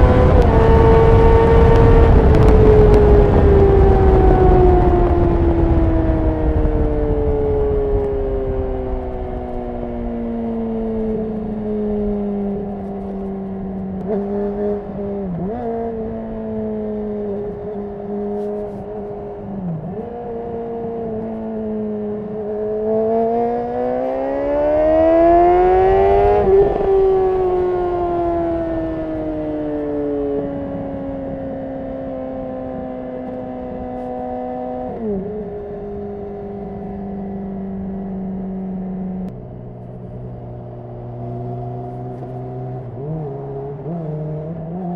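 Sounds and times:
wind rush: 0.0s - 14.0s
motorcycle engine revving: 0.0s - 44.9s.

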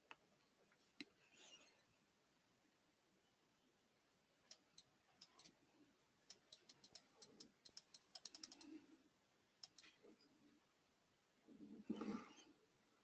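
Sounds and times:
typing on computer keyboard: 6.3s - 8.8s, 9.6s - 9.9s.

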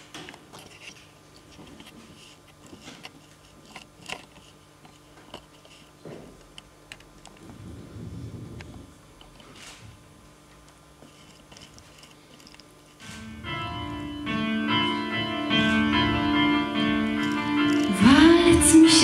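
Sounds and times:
low steady hum: 0.0s - 19.0s
small clicks and rustles: 11.0s - 13.0s.

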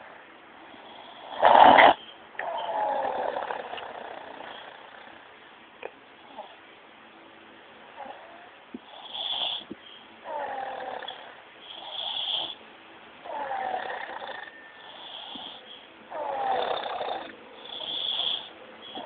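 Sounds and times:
child snoring: 0.9s - 4.9s, 8.0s - 12.6s, 13.2s - 19.0s.

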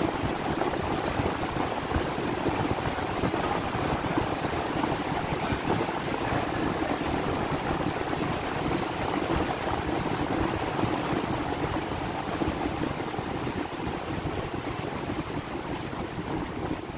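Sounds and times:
fan-driven air rushing: 0.0s - 16.9s.

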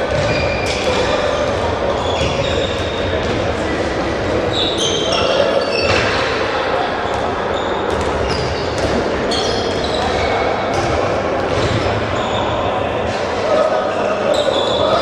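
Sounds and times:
balls bouncing: 0.0s - 4.2s, 7.1s - 12.0s
shoes squeaking on sports floor: 4.4s - 6.1s, 7.0s - 10.5s.

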